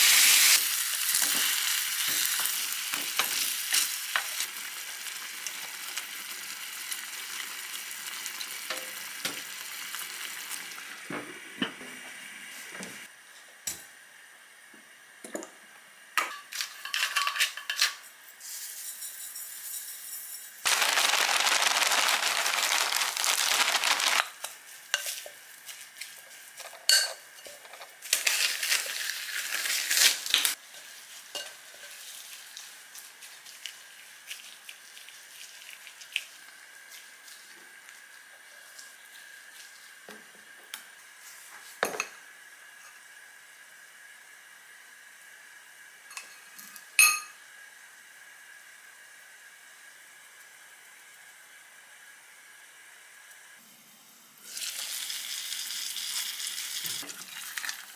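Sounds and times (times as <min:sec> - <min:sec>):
seasoning shaken from a bag: 0:18.4 - 0:26.8, 0:28.0 - 0:31.3
spoon clinking against glass: 0:46.1 - 0:47.4.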